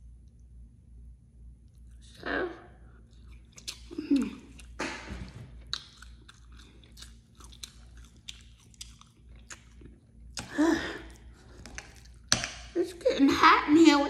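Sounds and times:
chewing soft food: 1.6 - 2.2, 2.8 - 12.8
wet mouth clicks and smacks: 3.1 - 5.0, 5.6 - 10.5.

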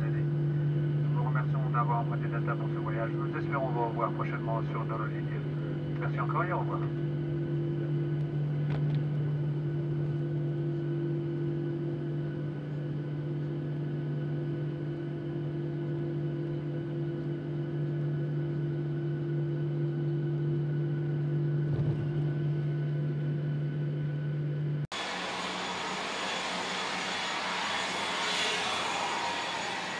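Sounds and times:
jet cabin engine drone: 0.0 - 29.9.

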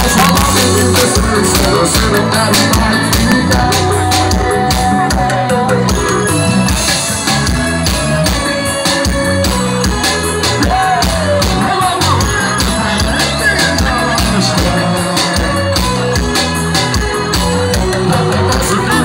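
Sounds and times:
person singing: 0.0 - 6.5, 10.5 - 16.6, 17.4 - 19.0
drums steady beat: 0.0 - 19.0.

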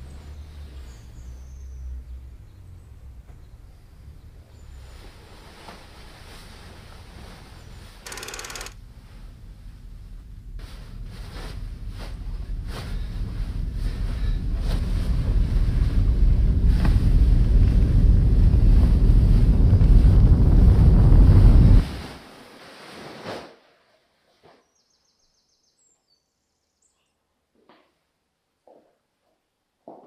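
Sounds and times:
wind-like rushing with deep rumble: 12.2 - 22.0.

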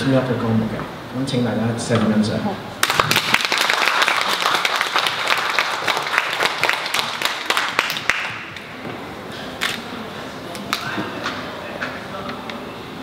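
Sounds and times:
audience applauding: 2.8 - 8.6.

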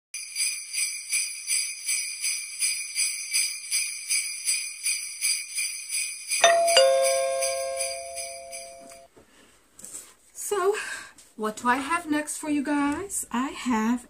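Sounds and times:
jingle bells shaken: 0.2 - 9.1
bell-like chime notes: 6.4 - 9.1.

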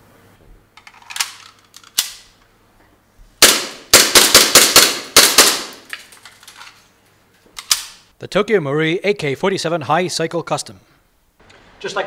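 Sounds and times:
pistol handling clicks: 1.1 - 2.3, 7.6 - 8.1
airsoft pistol shots: 3.4 - 5.9.

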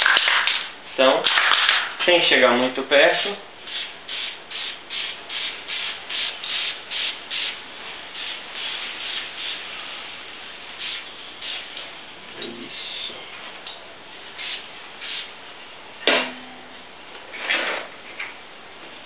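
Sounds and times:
spray-paint can hissing: 3.2 - 10.2, 10.8 - 11.8, 14.4 - 15.3.

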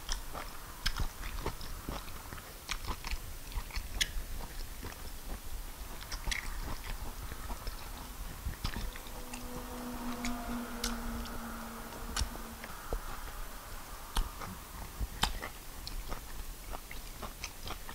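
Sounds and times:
person chewing food: 0.0 - 9.4, 13.9 - 17.9
steady low hum: 0.0 - 17.9.

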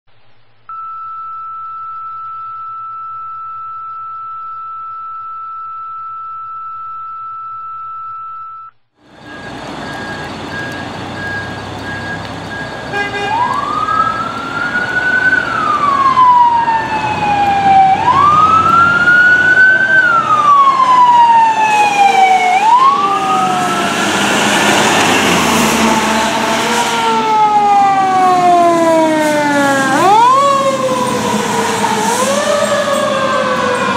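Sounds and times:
fire truck sirens wailing: 9.0 - 33.9
traffic on wet road: 9.0 - 33.9.

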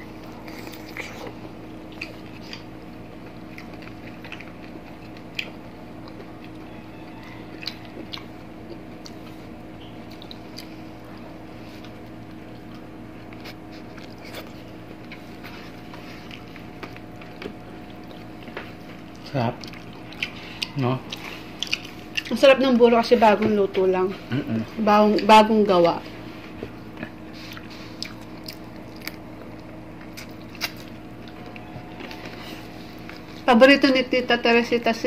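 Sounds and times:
people chewing: 0.0 - 33.5
wet lip smacks: 30.0 - 31.6.

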